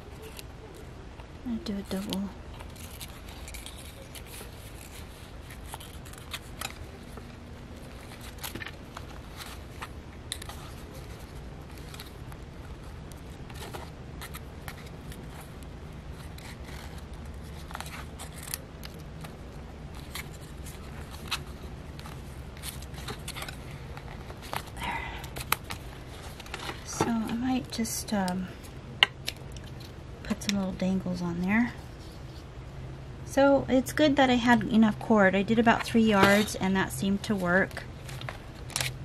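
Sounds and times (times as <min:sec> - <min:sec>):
steady low hum: 0:00.0 - 0:39.0
paper rustling and scraping: 0:01.7 - 0:27.4, 0:35.7 - 0:36.6.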